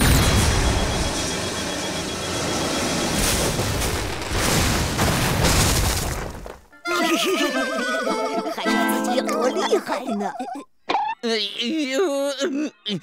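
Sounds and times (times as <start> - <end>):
cartoon energy cannon blast: 0.0 - 1.3
long noisy explosion: 0.0 - 1.6
thin steady whine: 0.1 - 3.4.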